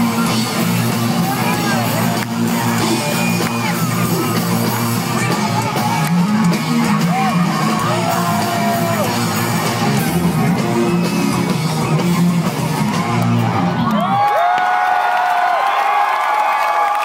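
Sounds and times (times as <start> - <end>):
live rock band: 0.0 - 13.9
person singing and yelling: 1.0 - 12.2.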